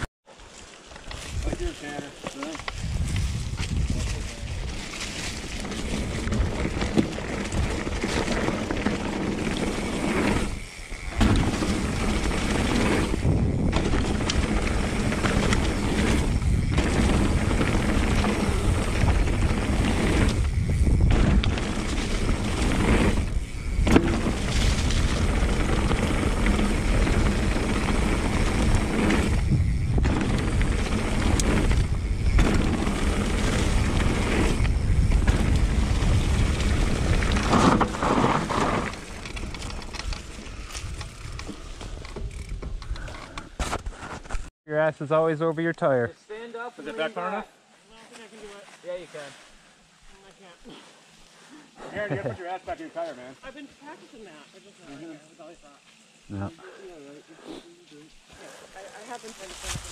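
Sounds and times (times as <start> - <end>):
tyres rolling over dirt and leaves: 0.3 - 42.5, 58.2 - 59.9
wind rushing over camera: 2.6 - 44.5.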